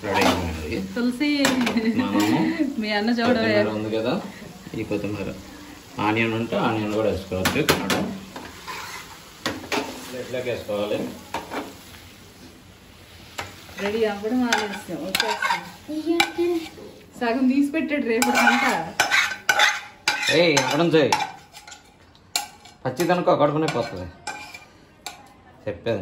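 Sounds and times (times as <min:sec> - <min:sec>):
metal spatula scraping frying pan: 0:00.0 - 0:00.8, 0:08.3 - 0:10.1, 0:13.4 - 0:16.8, 0:18.0 - 0:25.2.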